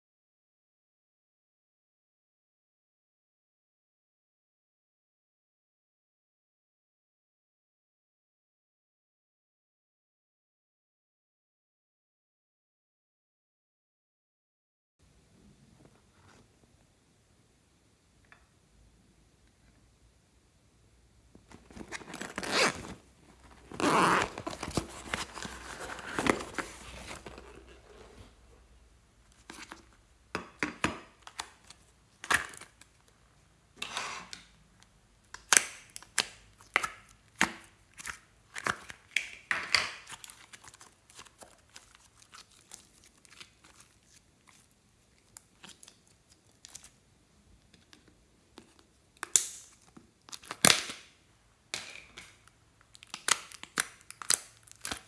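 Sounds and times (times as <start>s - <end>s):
plastic tearing and rustling: 21.5s - 28.3s, 40.0s - 47.0s, 52.4s - 55.0s.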